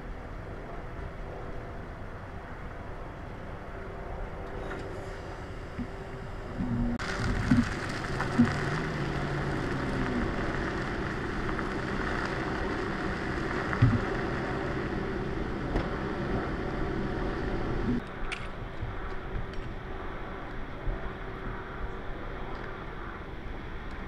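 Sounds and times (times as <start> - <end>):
vehicle engines idling: 0.0 - 18.0.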